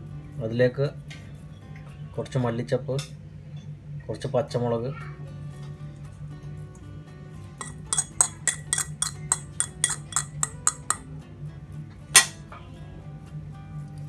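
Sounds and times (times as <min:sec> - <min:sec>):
fork clinking on ceramic plate: 0:07.6 - 0:11.0, 0:12.2 - 0:12.4.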